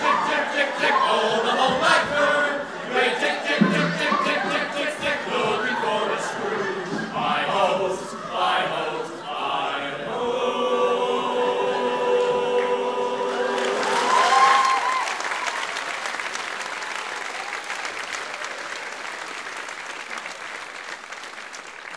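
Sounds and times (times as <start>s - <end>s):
group of voices singing: 0.0s - 14.5s
audience applause: 12.6s - 21.9s
person whooping: 14.0s - 15.5s.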